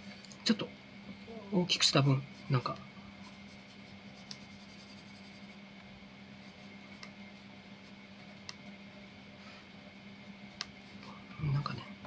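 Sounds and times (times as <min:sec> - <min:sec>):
low steady hum: 0:00.0 - 0:12.0
pencil scratching on paper: 0:03.2 - 0:05.6, 0:06.4 - 0:09.2.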